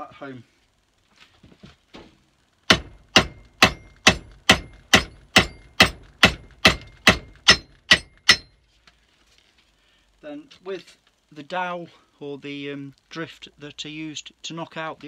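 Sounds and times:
hammer striking metal wedge: 2.7s - 8.6s.

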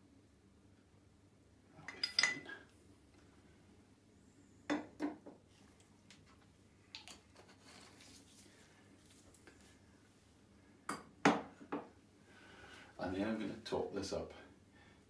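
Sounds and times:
glass clinking: 1.9s - 2.6s.

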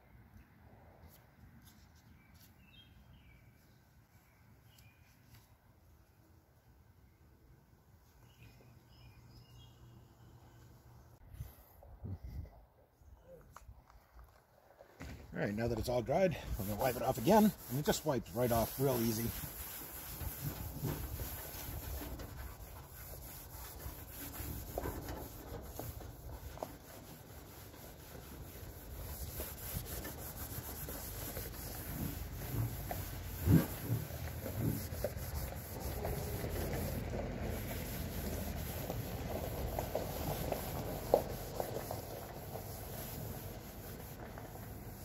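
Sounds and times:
towel rubbing on plastic: 15.6s - 45.0s.

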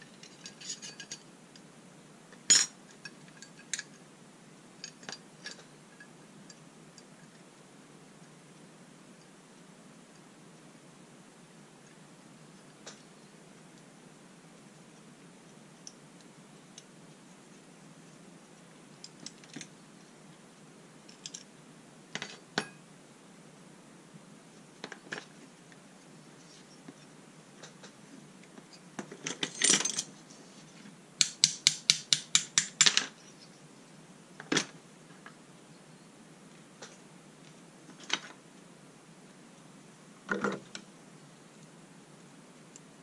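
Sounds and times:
metal parts rattling: 29.2s - 30.1s
sharp metallic taps: 31.2s - 33.0s.

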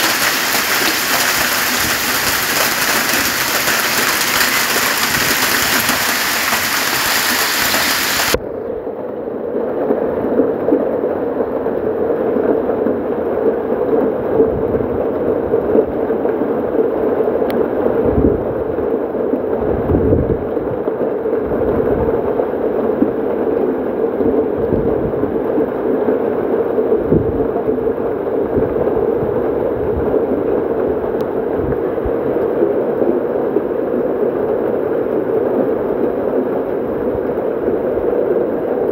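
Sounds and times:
hail clattering on pavement: 0.0s - 8.4s.

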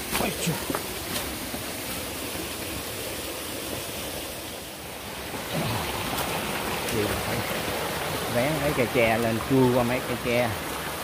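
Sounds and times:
forest stream water rushing: 0.0s - 11.0s.

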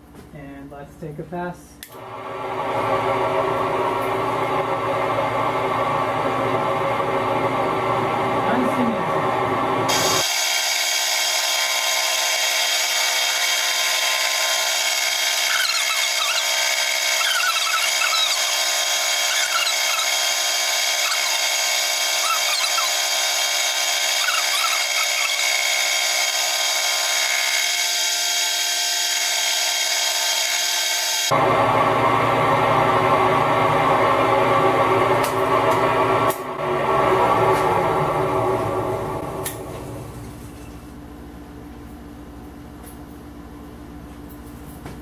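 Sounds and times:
milling machine cutting metal: 9.9s - 31.3s
wavering squeaks: 15.5s - 18.5s, 19.2s - 20.2s, 21.0s - 21.5s, 22.2s - 23.0s, 24.2s - 25.5s.

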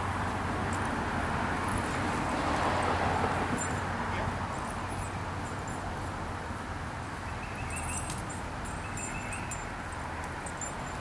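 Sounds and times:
faint high wavering chirps: 7.3s - 9.7s.

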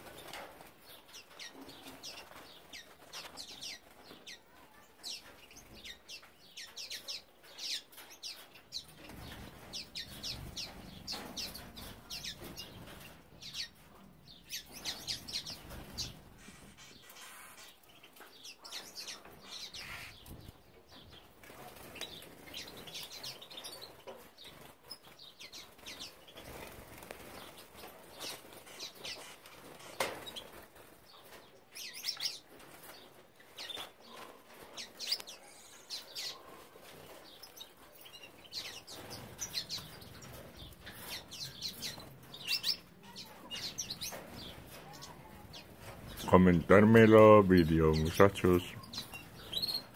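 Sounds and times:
finches chirping: 14.3s - 21.1s, 33.6s - 49.9s.

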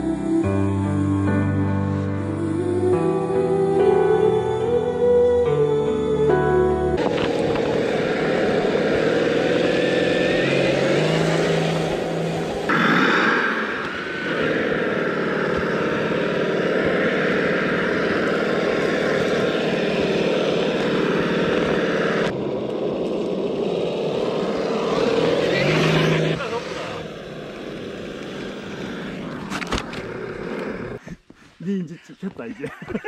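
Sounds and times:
rc truck motor whining: 7.0s - 31.0s.

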